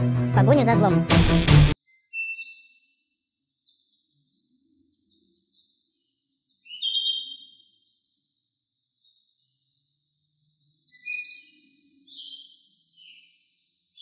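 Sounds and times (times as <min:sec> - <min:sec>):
bird chirps: 0:01.8 - 0:08.2, 0:10.2 - 0:14.0.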